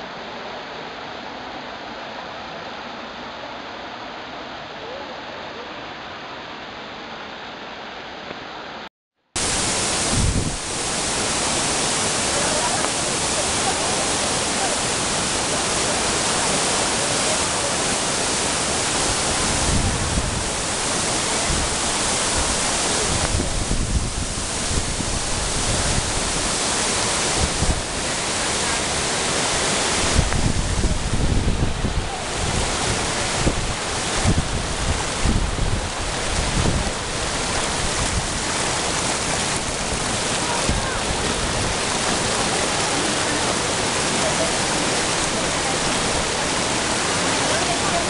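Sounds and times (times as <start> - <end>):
waterfall roaring: 0.0 - 48.0
wind rumble on microphone: 9.4 - 47.8.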